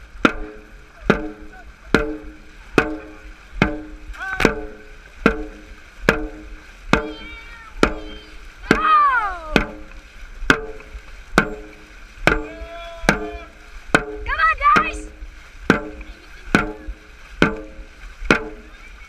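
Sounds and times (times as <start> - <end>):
drum struck in steady beat: 0.0 - 18.7
long yell falling in pitch: 7.1 - 9.6, 12.4 - 13.6.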